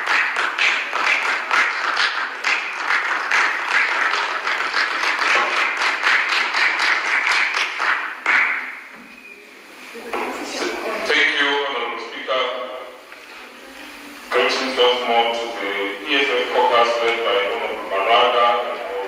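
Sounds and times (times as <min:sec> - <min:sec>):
crowd clapping: 0:00.0 - 0:08.9.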